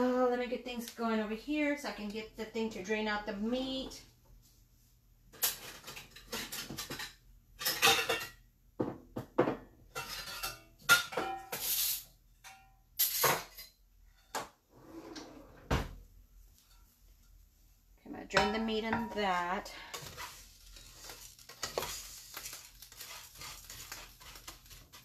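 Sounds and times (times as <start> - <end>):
pots and utensils clattering: 5.4 - 14.5, 18.3 - 25.0.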